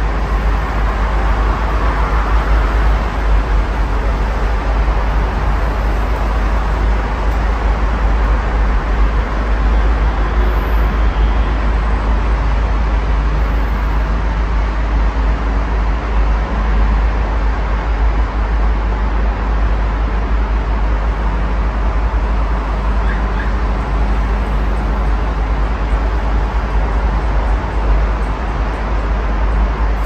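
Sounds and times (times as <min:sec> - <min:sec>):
road traffic: 0:00.0 - 0:30.0.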